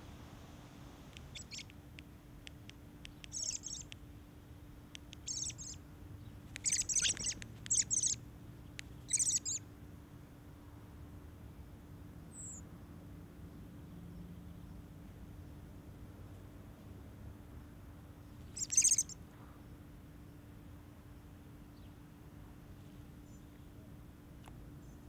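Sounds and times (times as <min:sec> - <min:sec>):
sharp bird ticks: 0:01.1 - 0:04.1, 0:04.9 - 0:09.6, 0:18.5 - 0:19.2
young birds chattering: 0:01.2 - 0:01.7, 0:03.1 - 0:04.0, 0:05.1 - 0:09.6, 0:18.5 - 0:19.2.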